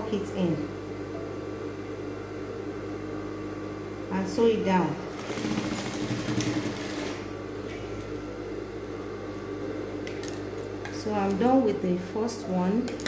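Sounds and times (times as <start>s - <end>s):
steady hum: 0.0s - 13.0s
sewing machine stitching: 5.1s - 7.2s.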